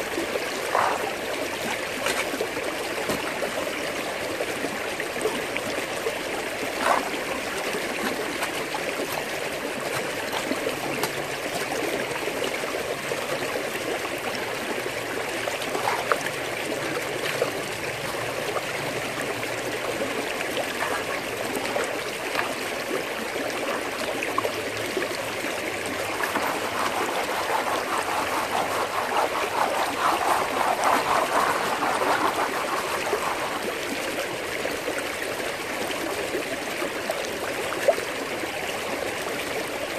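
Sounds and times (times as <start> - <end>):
water rushing through sluice box: 0.0 - 39.9.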